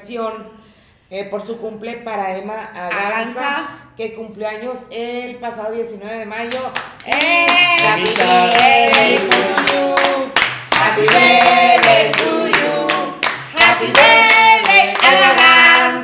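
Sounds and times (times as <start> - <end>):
people clapping: 6.5 - 16.0
group singing birthday song: 7.0 - 16.0.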